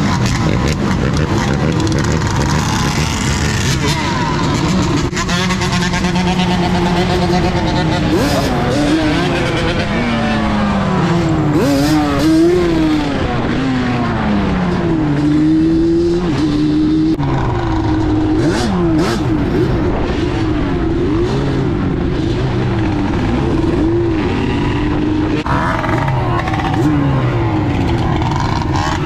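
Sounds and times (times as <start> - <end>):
two-stroke quad engine revving: 0.0 - 29.0.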